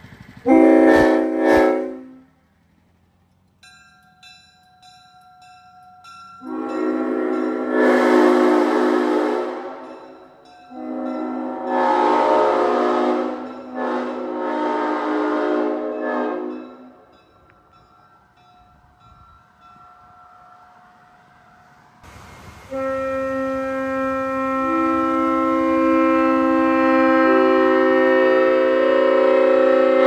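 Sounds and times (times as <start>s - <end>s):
train horn chord blasts: 0.5s - 2.4s, 6.4s - 17.2s, 22.7s - 30.0s.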